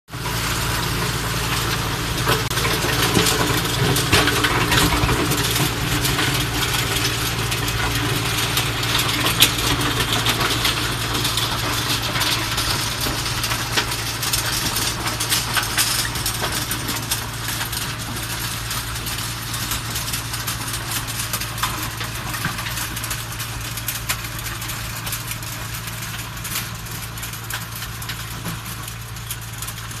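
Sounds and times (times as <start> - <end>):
tractor engine under load: 0.1 - 30.0.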